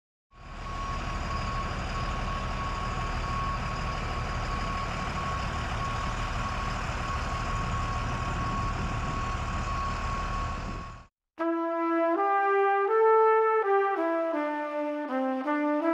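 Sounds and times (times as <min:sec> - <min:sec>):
tractor engine rumbling: 0:00.4 - 0:11.0
high electronic warning tone: 0:00.4 - 0:11.1.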